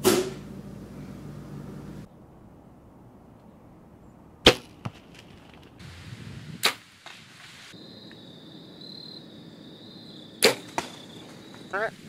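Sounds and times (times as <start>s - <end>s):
arrow striking target: 0.0s - 0.5s, 4.4s - 5.3s, 6.6s - 7.2s, 10.4s - 11.0s
bow shot crack: 0.0s - 0.5s, 4.4s - 6.0s, 6.6s - 7.5s, 10.4s - 11.4s
insect trill: 7.5s - 12.0s.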